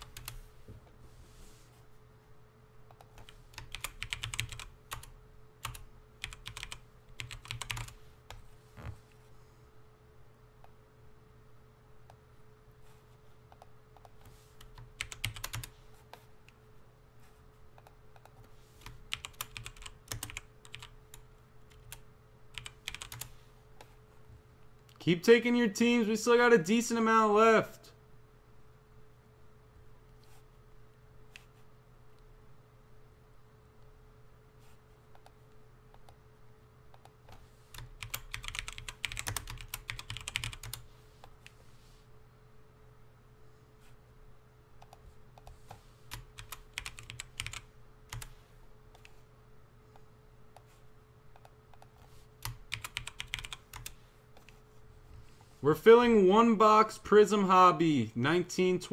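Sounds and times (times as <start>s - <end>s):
typing on computer keyboard: 0.0s - 0.4s, 2.9s - 8.4s, 13.6s - 15.7s, 17.8s - 23.3s, 37.0s - 40.8s, 46.1s - 48.3s, 51.3s - 54.6s.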